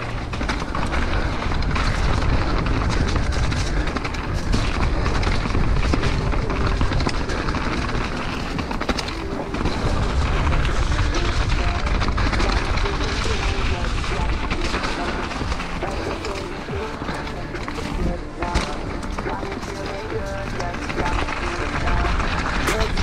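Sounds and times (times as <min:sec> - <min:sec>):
wind rushing on microphone: 0:00.0 - 0:14.5
bike rattling and knocking: 0:00.0 - 0:23.0
tyres over loose ground: 0:00.0 - 0:23.0.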